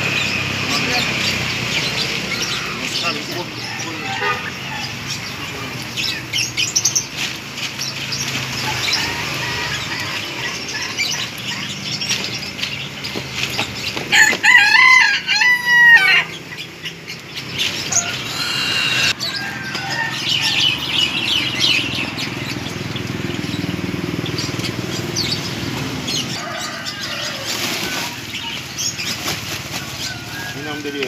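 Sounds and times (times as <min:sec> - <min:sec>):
rooster crowing: 0:02.4 - 0:05.1, 0:08.6 - 0:11.2, 0:14.1 - 0:16.4, 0:17.9 - 0:21.2, 0:26.3 - 0:28.6
bird chirps: 0:16.4 - 0:26.8
cardboard trays rustling and scraping: 0:27.0 - 0:30.6.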